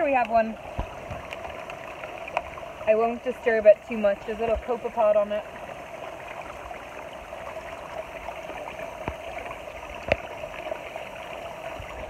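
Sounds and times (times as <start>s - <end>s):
water trickling and splashing: 0.0s - 12.0s.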